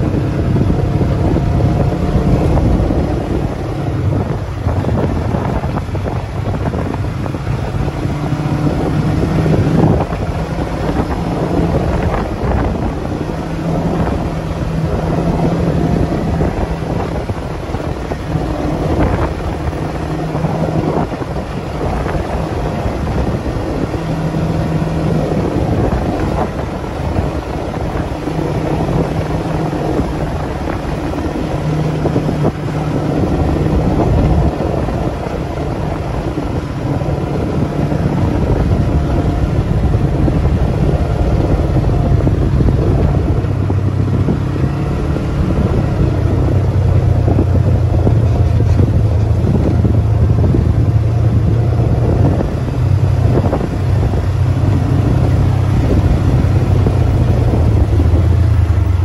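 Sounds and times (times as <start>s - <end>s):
off-road vehicle engine running: 0.0s - 59.0s
wind buffeting microphone: 0.0s - 59.0s.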